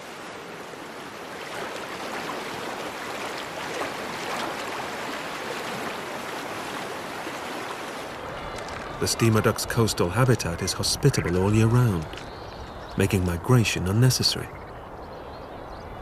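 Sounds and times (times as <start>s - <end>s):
small surf waves breaking: 0.0s - 10.6s.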